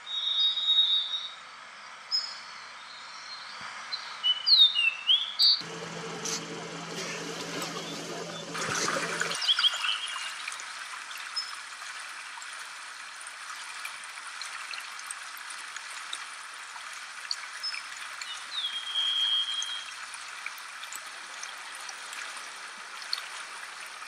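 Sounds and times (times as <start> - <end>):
stream flowing: 5.6 - 18.6, 19.6 - 24.0.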